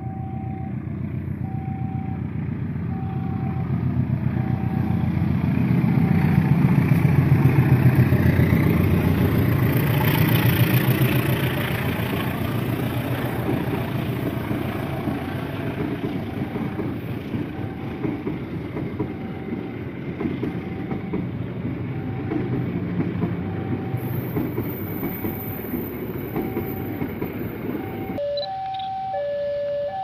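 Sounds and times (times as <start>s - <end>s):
train wheels rumbling and clattering: 5.1s - 28.2s.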